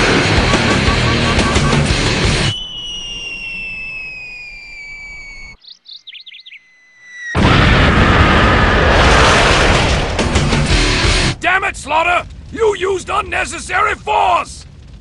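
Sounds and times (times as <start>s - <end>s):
loud music: 0.0s - 2.5s
birds chirping: 0.9s - 7.4s
cartoon falling bomb whistle: 1.5s - 5.6s, 6.5s - 7.8s
blast: 7.3s - 12.6s.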